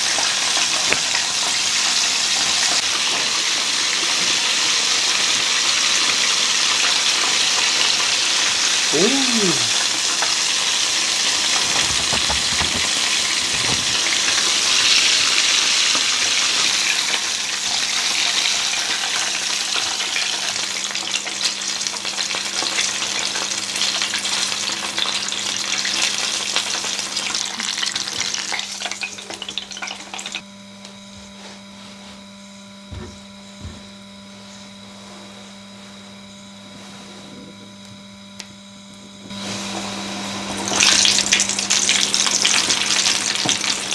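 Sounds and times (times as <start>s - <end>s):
chicken deep-frying in hot oil: 0.0s - 30.4s, 39.3s - 43.9s.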